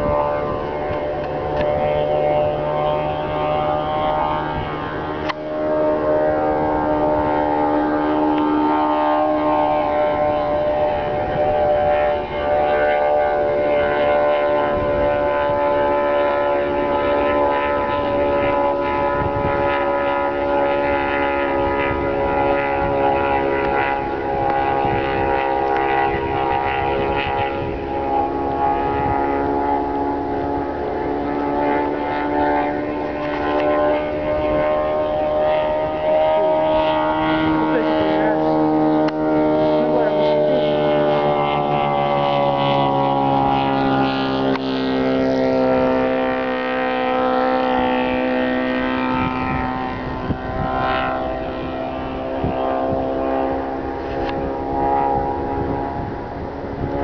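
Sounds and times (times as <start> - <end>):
propeller aircraft droning overhead: 0.0 - 57.0.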